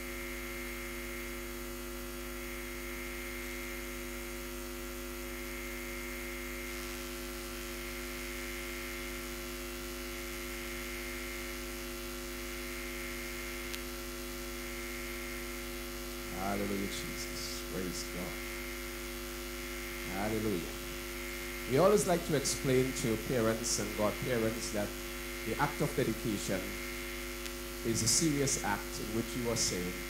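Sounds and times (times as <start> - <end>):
electrical mains hum: 0.0 - 30.0
faint click: 13.7 - 13.9
faint hiss: 16.3 - 18.4, 21.7 - 30.0.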